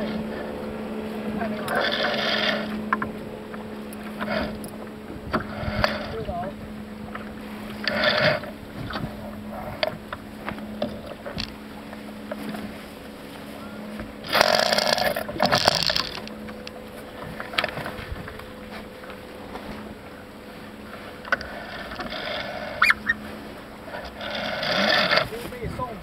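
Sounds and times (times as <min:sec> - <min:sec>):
water noise: 0:00.0 - 0:26.0
wind noise: 0:04.3 - 0:10.2.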